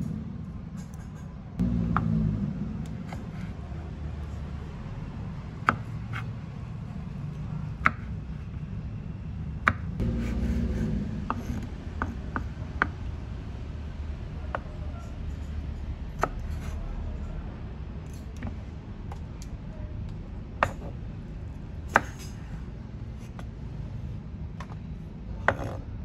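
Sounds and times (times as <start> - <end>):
steady low hum: 0.0 - 26.0
knife chopping on wooden board: 2.9 - 3.6, 5.6 - 6.3, 7.8 - 8.1, 9.6 - 13.0, 20.6 - 21.0, 21.9 - 22.3, 25.5 - 25.8.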